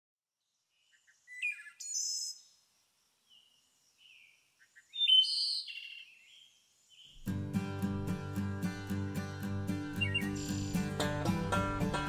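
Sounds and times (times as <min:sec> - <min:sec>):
songbird calling: 0:00.5 - 0:07.3, 0:09.8 - 0:11.6.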